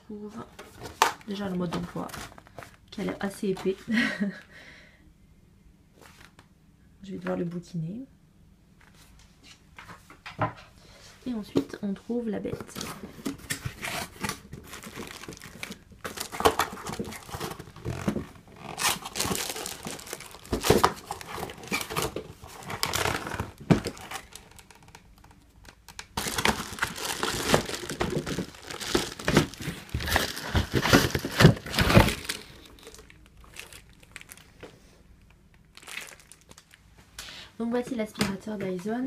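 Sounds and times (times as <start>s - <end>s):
cardboard packaging rustling: 0.6s - 2.8s, 12.5s - 34.8s, 35.7s - 36.8s
plastic wrapping crinkling: 12.5s - 37.0s.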